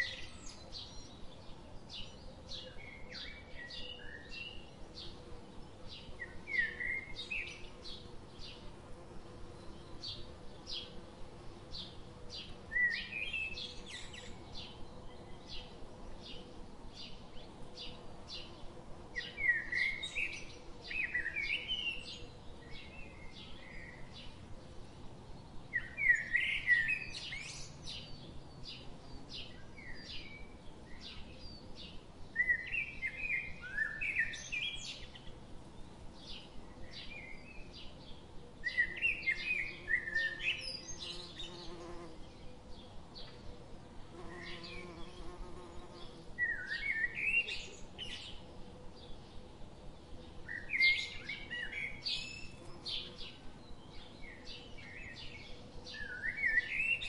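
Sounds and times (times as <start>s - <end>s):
honeybee buzzing: 41.0s - 42.2s, 44.1s - 46.4s.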